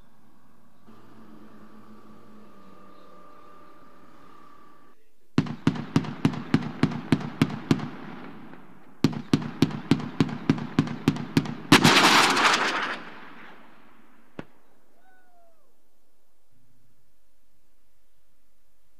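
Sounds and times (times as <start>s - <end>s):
rapid cannon fire: 5.4s - 14.5s.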